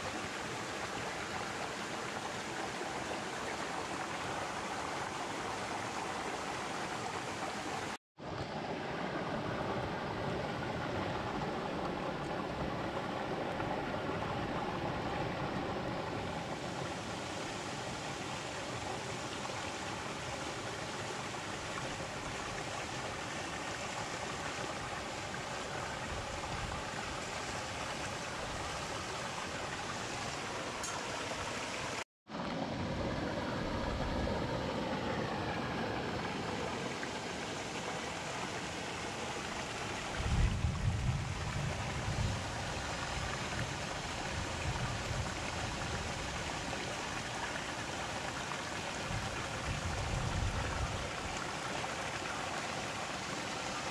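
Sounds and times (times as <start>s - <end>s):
water rushing over rocks: 34.0s - 53.9s.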